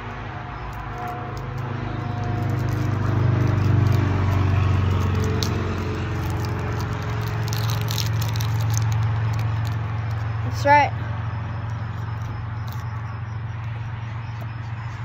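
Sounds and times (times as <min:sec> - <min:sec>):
low mechanical hum: 0:00.0 - 0:15.0
wrapper crinkling as torn open: 0:00.6 - 0:10.4, 0:11.8 - 0:13.0.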